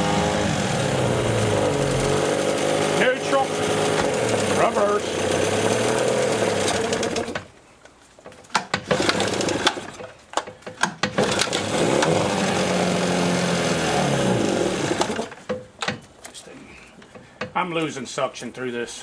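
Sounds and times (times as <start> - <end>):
outboard motor running and sputtering: 0.0 - 7.4, 11.2 - 15.3.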